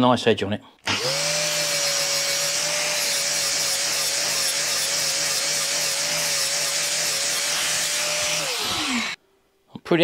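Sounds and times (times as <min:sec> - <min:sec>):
angle grinder grinding steel: 0:00.9 - 0:09.2.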